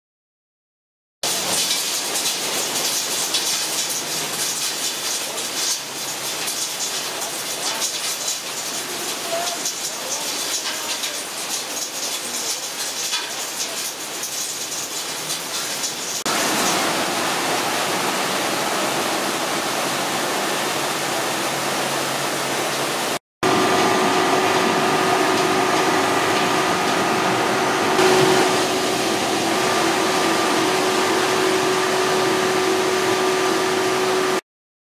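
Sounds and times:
water pouring into hopper: 0:01.2 - 0:34.4
slurry pouring into hopper: 0:01.3 - 0:19.7
conveyor machine hum: 0:23.4 - 0:34.4.

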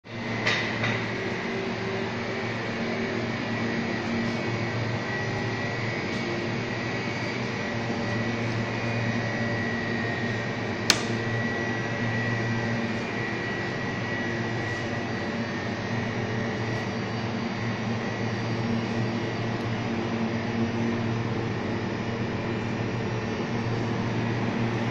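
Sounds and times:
refrigeration unit hum and fan: 0:00.0 - 0:24.9
sharp click: 0:10.9 - 0:11.2.

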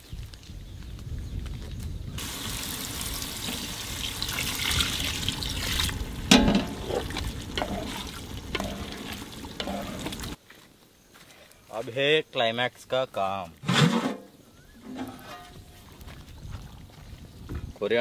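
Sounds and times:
water splashing into pot: 0:02.2 - 0:10.4
ladle stirring wet mince: 0:03.4 - 0:10.4.

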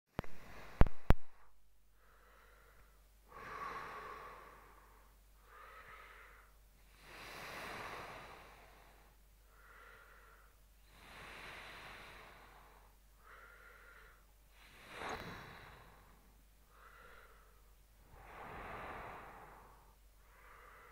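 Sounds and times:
faint steady low hum: 0:00.2 - 0:20.9
slow heavy breathing: 0:00.2 - 0:20.9.

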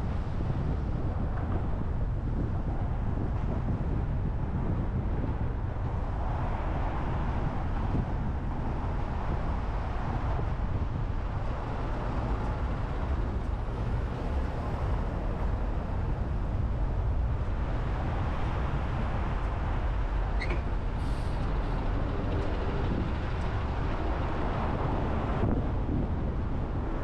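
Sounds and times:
car driving rumble: 0:00.0 - 0:27.0
brief high squeal: 0:20.4 - 0:21.3.

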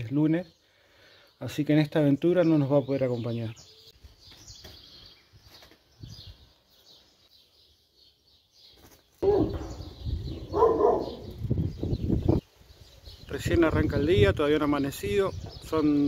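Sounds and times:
small birds chirping: 0:00.0 - 0:16.0
loud low rumbling: 0:09.4 - 0:12.4.

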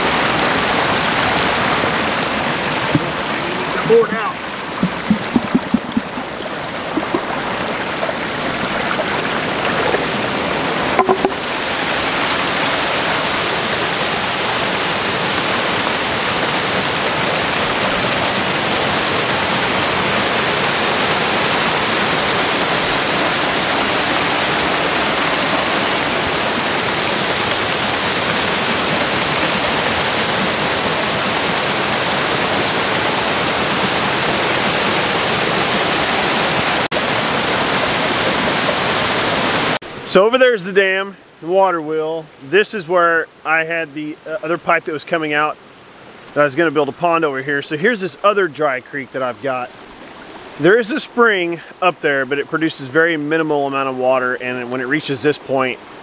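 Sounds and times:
water rushing over dam: 0:00.0 - 0:56.0
short knocks: 0:04.8 - 0:07.4, 0:11.0 - 0:11.5.

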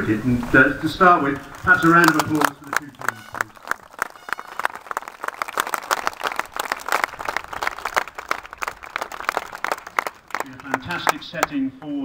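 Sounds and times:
crowd applauding: 0:01.2 - 0:11.6.

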